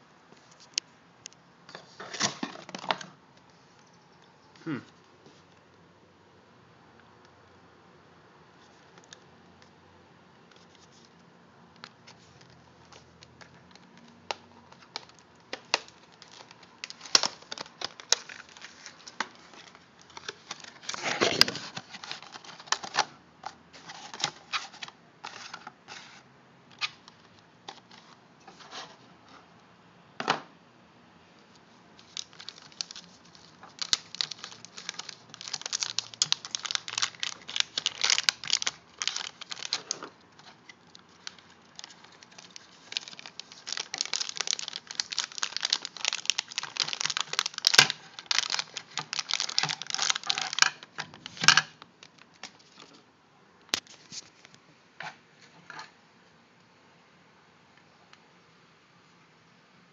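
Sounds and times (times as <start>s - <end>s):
foil bag crinkling: 14.7s - 23.0s, 32.0s - 52.9s.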